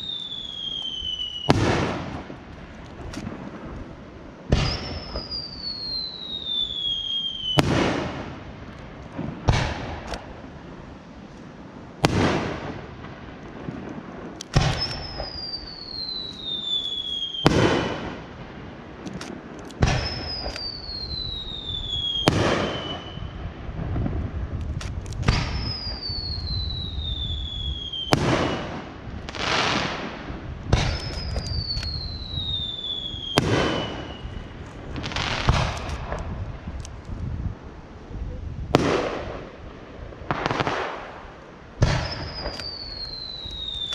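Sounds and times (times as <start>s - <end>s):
falling firework whistle: 0.0s - 2.2s, 4.5s - 8.3s, 14.6s - 18.2s, 19.8s - 23.6s, 25.3s - 30.1s, 30.8s - 35.8s, 41.8s - 43.9s
fireworks bursting with echo: 0.0s - 38.0s, 38.6s - 43.9s.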